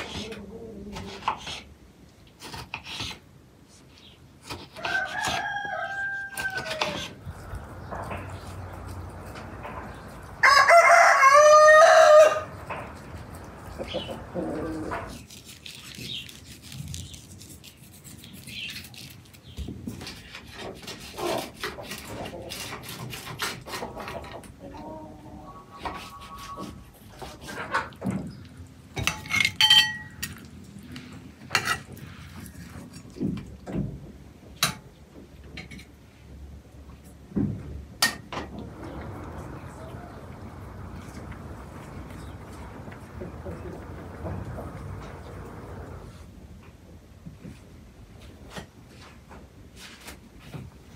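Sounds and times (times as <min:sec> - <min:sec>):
rooster crowing: 0:04.8 - 0:07.7, 0:09.8 - 0:13.0, 0:38.7 - 0:41.5
utensil clinking on a pan: 0:29.0 - 0:30.5.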